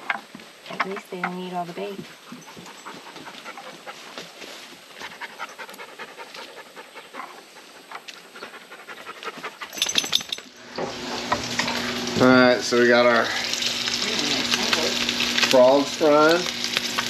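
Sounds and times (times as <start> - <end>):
dog panting: 2.0 - 10.0
frog legs sizzling in a pan: 10.9 - 17.0.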